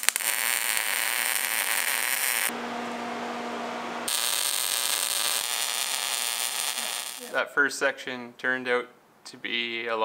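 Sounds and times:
welding arc crackling hiss: 0:00.0 - 0:02.5, 0:04.1 - 0:07.4
welder low hum: 0:00.0 - 0:07.4.

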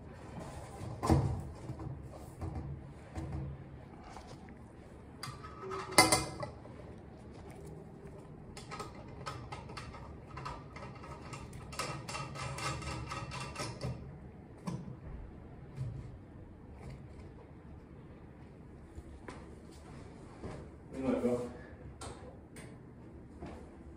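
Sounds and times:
small clicks and rattles: 0:08.5 - 0:14.0.

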